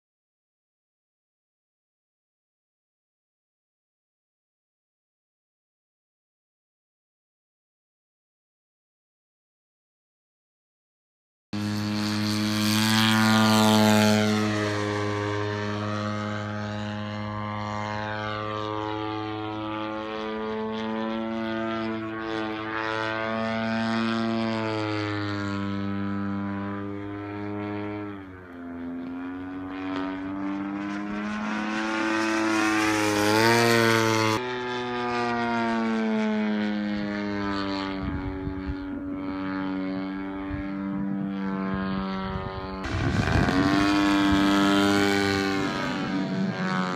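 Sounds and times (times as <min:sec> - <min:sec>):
model plane engine drone: 0:11.6 - 0:46.9.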